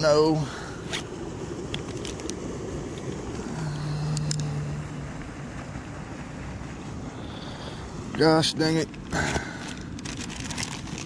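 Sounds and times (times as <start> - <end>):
low hum: 0.0 - 8.2
rushing spillway water: 0.0 - 11.0.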